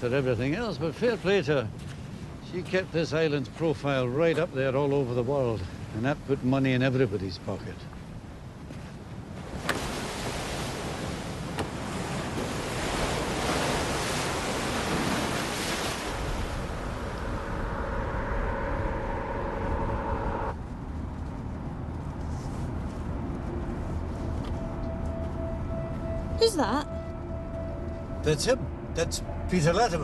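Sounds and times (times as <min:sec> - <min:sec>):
wind: 0:00.0 - 0:30.0
sea surf rushing: 0:09.4 - 0:20.6
steady tones: 0:15.6 - 0:21.2, 0:23.0 - 0:30.0.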